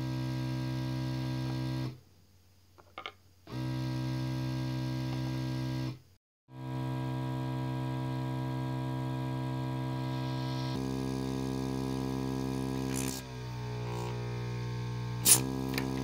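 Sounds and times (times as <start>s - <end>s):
airbrush compressor humming: 9.8s - 16.0s.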